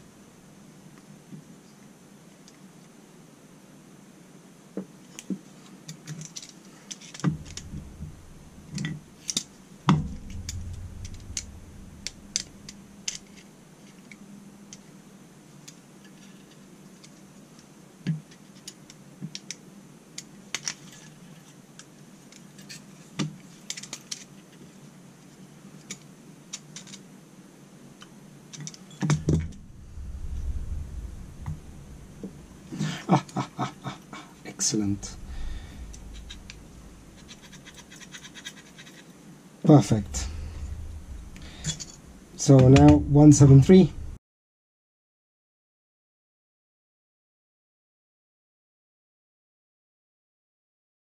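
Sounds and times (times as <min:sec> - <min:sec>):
knocks and dull thumps: 0:09.9 - 0:13.0, 0:29.1 - 0:32.6.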